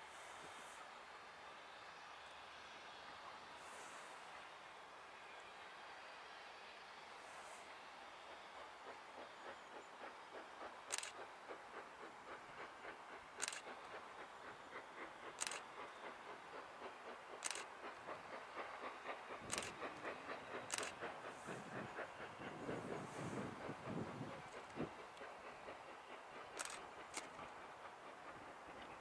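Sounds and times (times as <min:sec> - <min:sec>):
steam locomotive chuffing: 0:00.0 - 0:29.0
sharp clicks: 0:10.9 - 0:11.3, 0:13.4 - 0:13.9, 0:15.3 - 0:15.7, 0:17.4 - 0:17.8, 0:19.5 - 0:21.0, 0:26.5 - 0:27.5.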